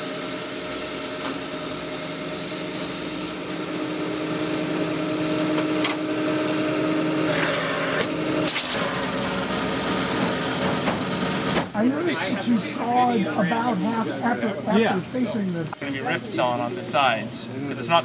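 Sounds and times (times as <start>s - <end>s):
bandsaw cutting log: 3.0s - 11.7s.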